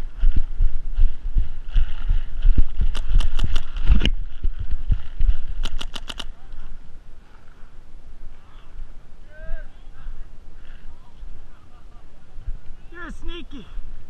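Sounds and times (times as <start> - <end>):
running footsteps thudding: 0.0 - 6.2
paintball marker firing: 5.6 - 6.4.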